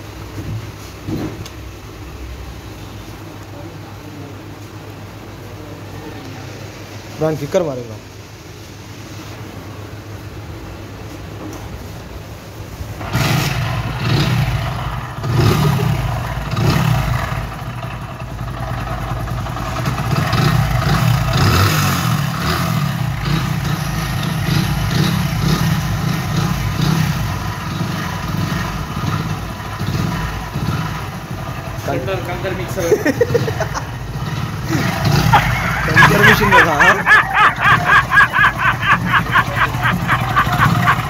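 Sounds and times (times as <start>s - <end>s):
motorcycle engine revving: 13.0s - 41.0s.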